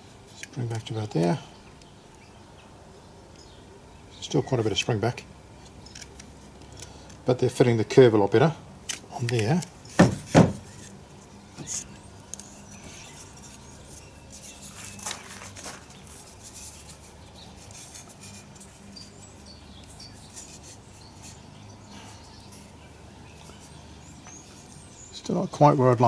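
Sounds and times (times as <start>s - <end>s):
wood rubbing and scraping: 9.2s - 22.8s
wood knocking on a table: 10.0s - 10.6s.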